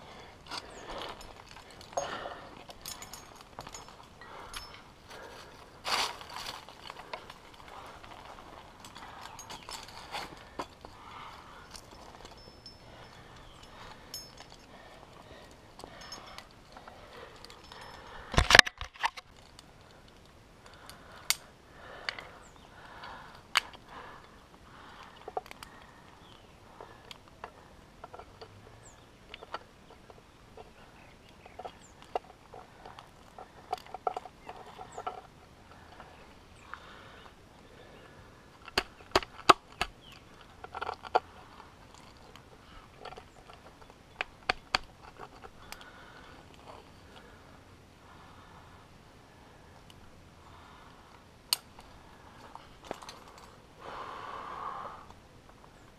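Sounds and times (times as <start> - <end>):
metal climbing gear clinking: 0.0 - 37.4, 38.4 - 48.5, 51.5 - 53.7
metal rattle: 0.5 - 4.9.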